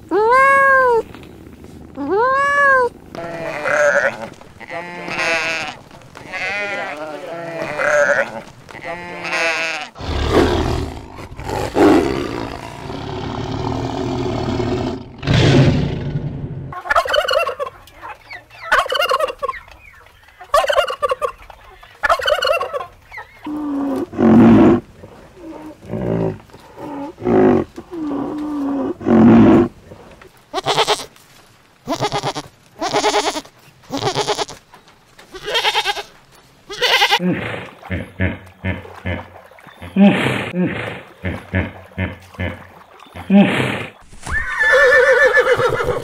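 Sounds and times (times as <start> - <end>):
sheep bleating: 2.1 - 10.0, 31.9 - 34.6, 35.4 - 36.1, 36.7 - 37.2
turkeys gobbling: 16.7 - 23.6.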